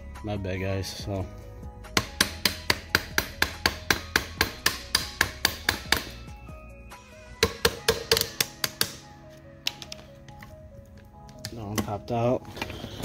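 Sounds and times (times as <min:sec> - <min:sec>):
mallet tapping on metal pin: 0:07.4 - 0:09.0.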